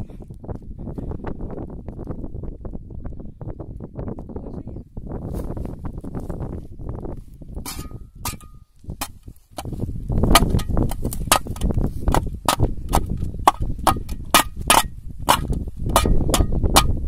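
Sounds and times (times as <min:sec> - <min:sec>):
spade clinking on metal: 0:07.7 - 0:08.6.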